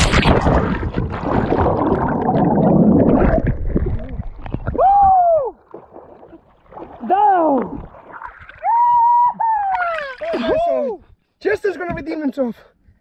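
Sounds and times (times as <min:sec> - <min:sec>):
underwater churning and bubbles: 0:00.0 - 0:10.5
man shouting: 0:08.7 - 0:11.0.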